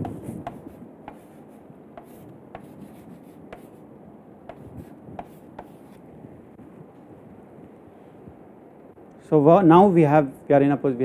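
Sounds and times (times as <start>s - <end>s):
chalk scraping on chalkboard: 0.0s - 3.8s, 4.5s - 6.0s
chalk tapping on board: 0.0s - 3.8s, 4.5s - 6.0s.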